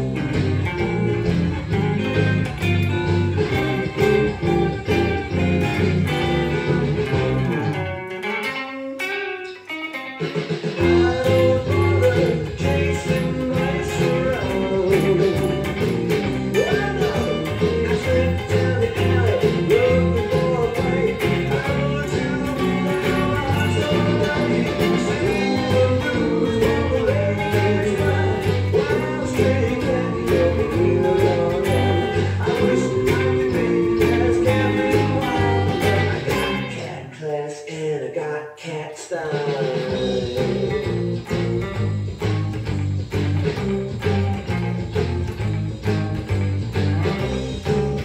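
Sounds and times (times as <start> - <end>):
backing track with drums and singing: 0.0 - 7.8, 10.2 - 48.0
electric guitar with delay: 0.0 - 37.2, 39.5 - 48.0.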